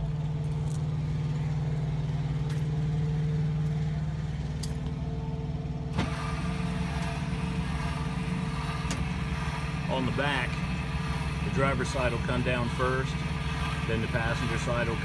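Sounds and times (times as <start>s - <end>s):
electric jack motor humming: 5.9s - 15.0s.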